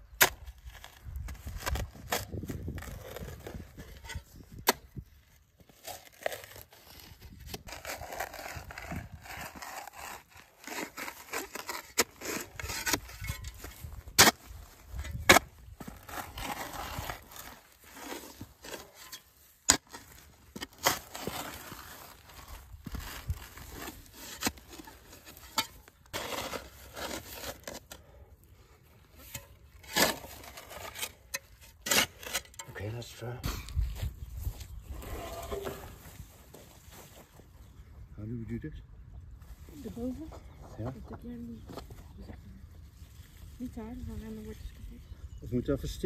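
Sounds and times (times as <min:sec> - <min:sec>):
spade digging into soil: 0:00.0 - 0:05.0, 0:05.7 - 0:28.2, 0:29.0 - 0:33.8, 0:34.8 - 0:36.2.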